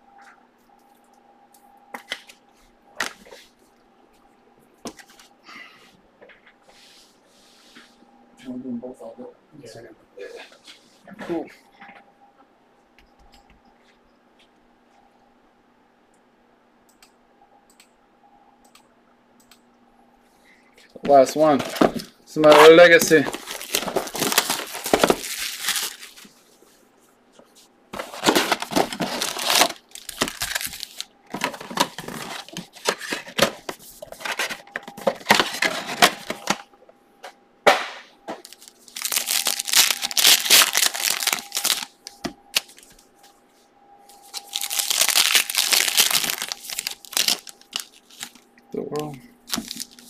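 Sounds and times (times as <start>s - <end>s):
plastic wrappers crinkling and tearing: 21.1s - 26.3s, 28.0s - 36.6s, 38.4s - 43.0s, 44.2s - 50.0s.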